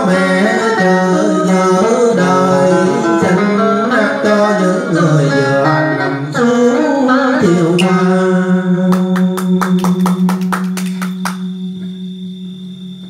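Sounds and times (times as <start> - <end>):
person singing: 0.0 - 10.3
electric guitar note ringing: 0.0 - 13.0
person clapping: 8.9 - 11.5.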